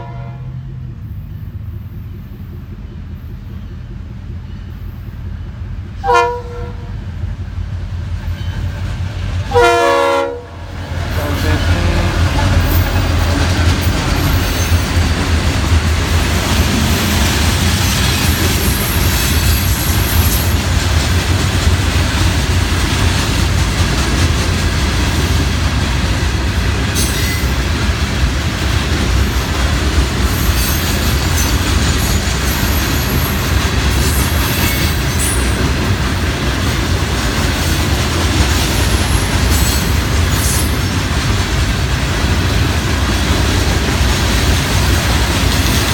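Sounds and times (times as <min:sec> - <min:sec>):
diesel locomotive horn blasts: 0:00.0 - 0:00.8, 0:06.0 - 0:07.0, 0:09.5 - 0:14.4
hopper cars clattering on rails: 0:00.0 - 0:45.9
diesel engines rumbling: 0:06.8 - 0:45.9.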